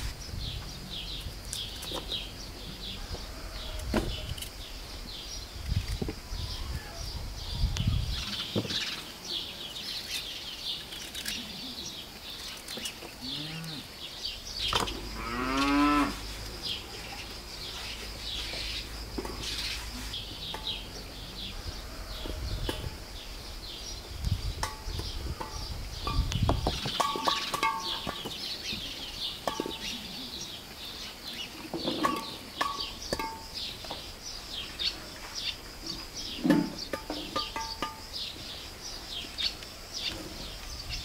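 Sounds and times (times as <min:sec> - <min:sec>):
small birds chirping: 0:00.0 - 0:41.0
cow mooing: 0:15.1 - 0:16.2.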